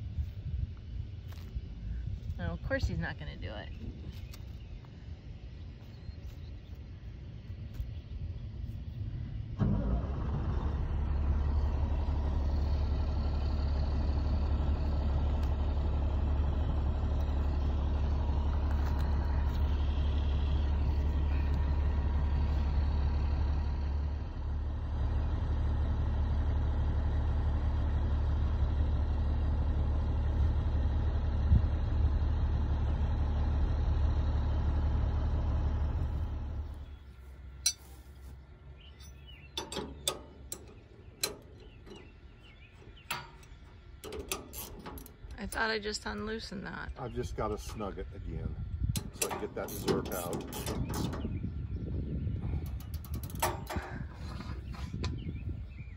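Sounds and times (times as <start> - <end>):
engine idling: 7.2 - 55.9
wrench clicking on metal: 52.7 - 53.9.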